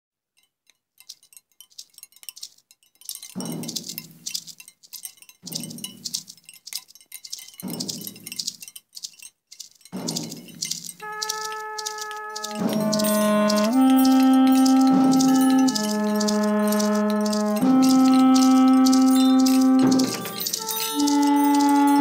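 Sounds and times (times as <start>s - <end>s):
wind chimes tinkling: 0.4s - 22.0s
low chime note: 11.0s - 22.0s.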